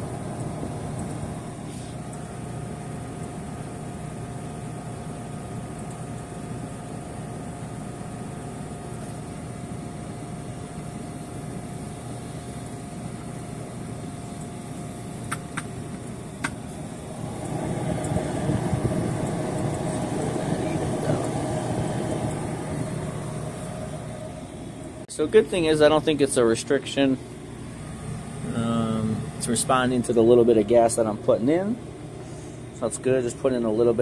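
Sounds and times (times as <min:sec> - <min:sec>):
compressor and fan humming: 0:00.0 - 0:34.0
sharp clicks: 0:15.2 - 0:16.6.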